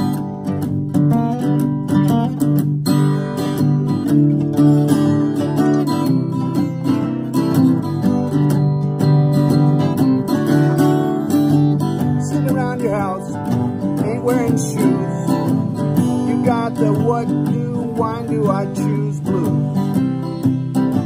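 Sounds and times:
acoustic guitars strummed: 0:00.0 - 0:21.0
man singing: 0:12.0 - 0:20.1.

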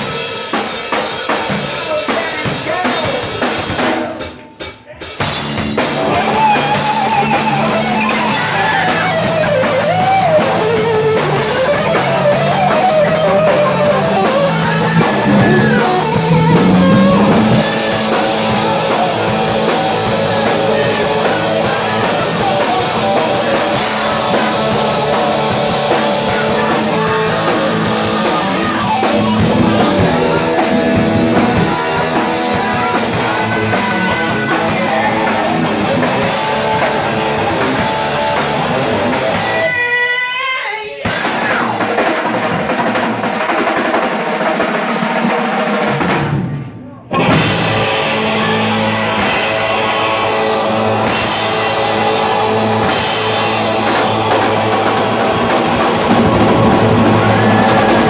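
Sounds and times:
rock band playing: 0:00.0 - 0:58.0
lead guitar bending in pitch: 0:11.0 - 0:18.8.

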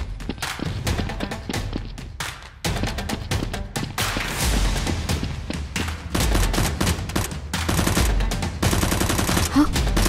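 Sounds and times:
automatic gunfire: 0:06.2 - 0:10.0.

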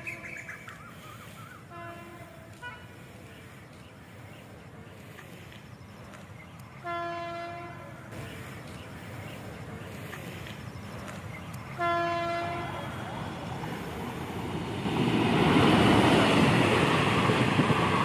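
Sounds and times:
train rumble: 0:00.0 - 0:18.0
locomotive horn blasts: 0:01.7 - 0:03.0, 0:06.8 - 0:08.0, 0:11.8 - 0:13.1.

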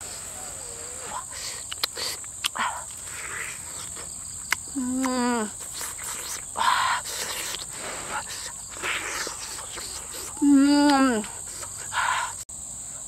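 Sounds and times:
woman humming mmm: 0:00.0 - 0:11.8
crickets droning: 0:00.0 - 0:13.0
wet smacking and chewing: 0:01.4 - 0:11.7.

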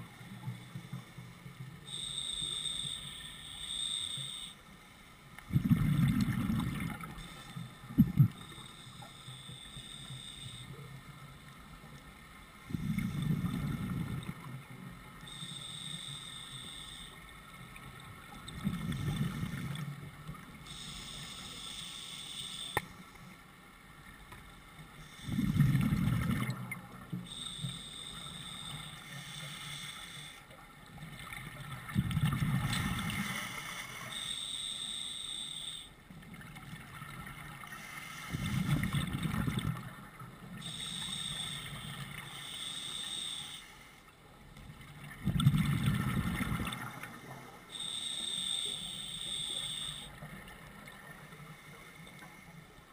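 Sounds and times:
exhaled bubbles bubbling: 0:05.5 - 0:07.1, 0:38.5 - 0:40.0, 0:44.9 - 0:47.2
regulator breathing hiss: 0:08.4 - 0:10.8, 0:15.3 - 0:17.2, 0:20.6 - 0:23.2, 0:27.3 - 0:30.4, 0:33.2 - 0:35.9, 0:37.7 - 0:38.7, 0:40.6 - 0:44.1, 0:47.1 - 0:50.1.

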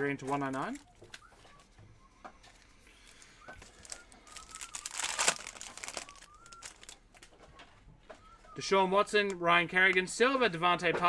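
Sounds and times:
foil wrapper crinkling: 0:03.0 - 0:07.4.

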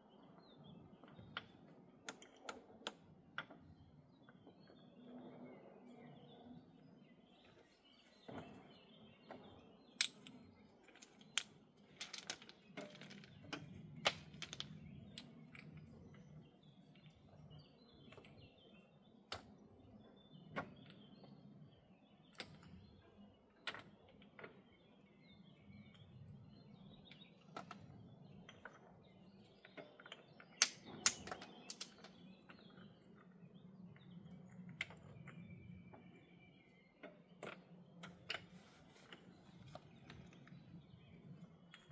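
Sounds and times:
stones clacking together: 0:09.9 - 0:17.1, 0:29.6 - 0:33.3.

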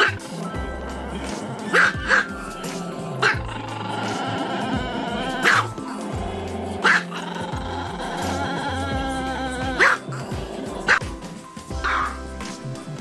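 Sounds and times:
background music: 0:00.0 - 0:13.0
small dog barking: 0:01.7 - 0:02.4, 0:05.4 - 0:05.7, 0:06.8 - 0:07.3, 0:09.7 - 0:10.1, 0:10.8 - 0:11.1, 0:11.8 - 0:12.2.

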